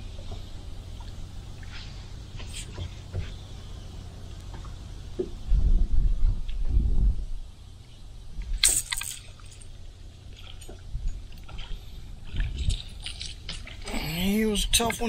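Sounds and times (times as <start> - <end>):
wind rumble on microphone: 0.0 - 15.0
microphone handling noise: 5.2 - 7.4.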